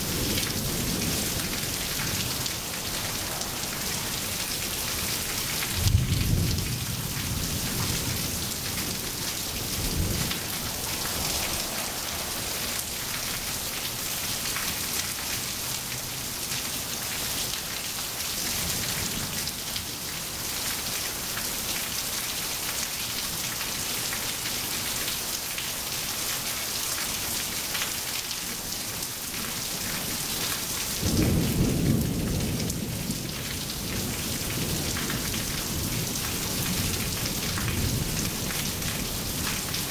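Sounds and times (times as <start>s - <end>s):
thunder rolling: 0.0s - 14.6s
rain on wet pavement: 0.0s - 39.9s.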